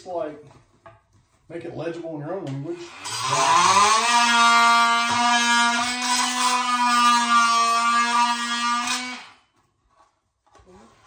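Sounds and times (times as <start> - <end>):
power tool motor whining: 2.8 - 9.3.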